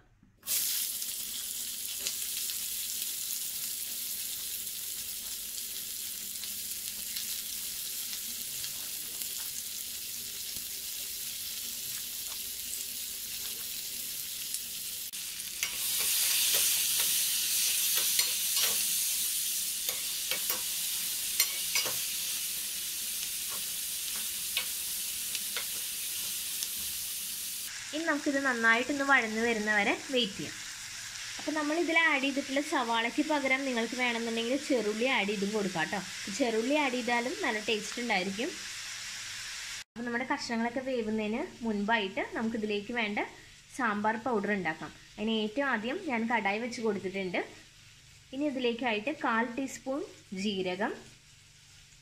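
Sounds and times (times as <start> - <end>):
vegetables sizzling in oil: 0.4 - 52.0
spatula scraping in pan: 15.4 - 27.2.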